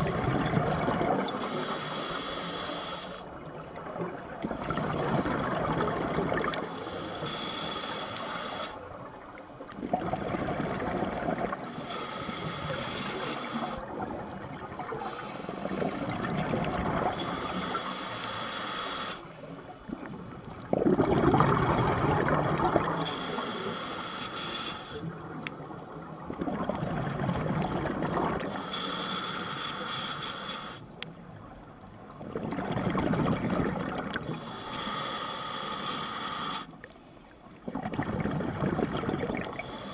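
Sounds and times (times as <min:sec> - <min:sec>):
scuba regulator hissing inhale: 0:01.2 - 0:03.3, 0:06.5 - 0:08.8, 0:11.4 - 0:13.9, 0:14.9 - 0:15.8, 0:17.0 - 0:19.4, 0:22.7 - 0:25.1, 0:28.4 - 0:31.0, 0:34.2 - 0:36.8, 0:39.4 - 0:39.9
bubbling exhale: 0:20.7 - 0:25.1.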